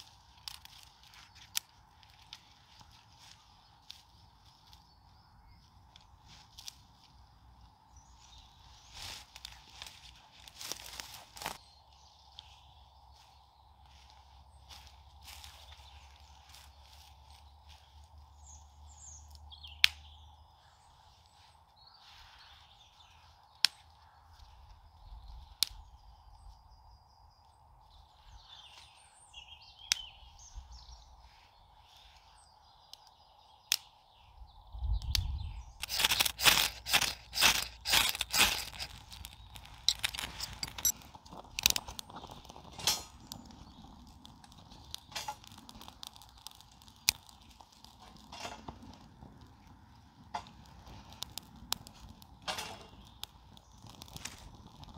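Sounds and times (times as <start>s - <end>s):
twigs snapping: 0.0s - 4.9s, 5.8s - 7.3s, 8.2s - 11.6s, 19.2s - 20.3s, 23.1s - 24.6s, 25.4s - 26.1s, 29.7s - 30.6s, 32.8s - 34.0s, 34.8s - 54.9s
small birds chirping: 0.0s - 54.9s
ferro rod scraping: 35.8s - 43.3s.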